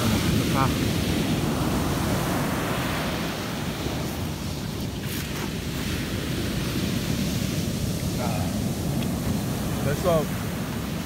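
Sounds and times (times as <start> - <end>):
waves breaking on beach: 0.0 - 11.0.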